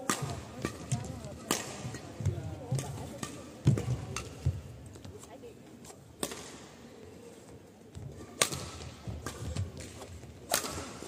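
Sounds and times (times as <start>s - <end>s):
badminton racket hitting shuttlecock: 0.0s - 4.6s, 8.2s - 11.0s.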